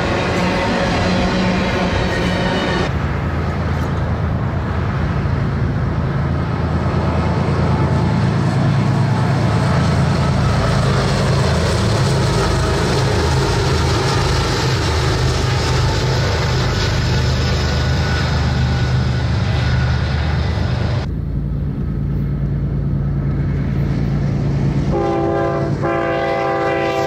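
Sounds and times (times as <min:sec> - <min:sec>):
diesel locomotive engine drone: 0:00.0 - 0:27.0.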